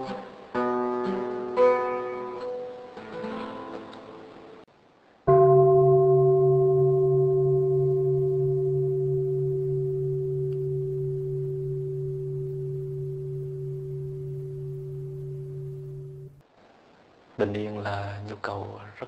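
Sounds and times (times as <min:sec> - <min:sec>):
meditation bell ringing: 0:05.3 - 0:16.4.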